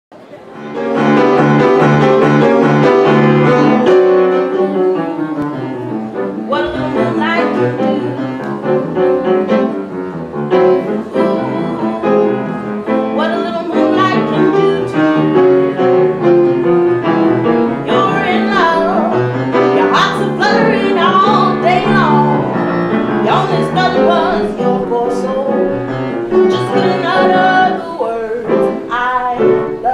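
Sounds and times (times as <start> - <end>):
piano accompaniment: 0.1 - 29.9
woman singing a slow song: 4.3 - 8.8, 10.7 - 15.2, 17.8 - 22.6, 23.2 - 29.9.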